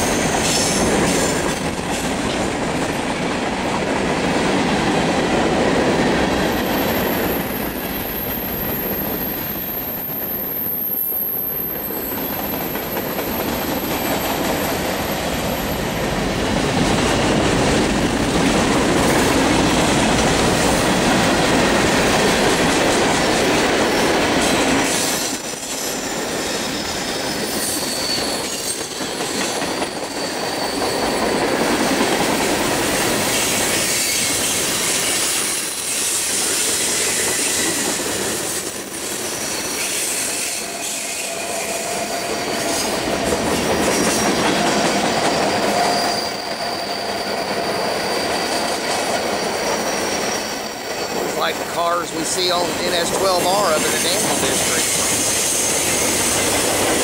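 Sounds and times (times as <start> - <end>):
train wheels rumbling on rails: 0.0 - 57.0
high-pitched wheel squeal: 25.5 - 29.2, 29.8 - 31.6, 39.4 - 42.9, 45.0 - 50.8.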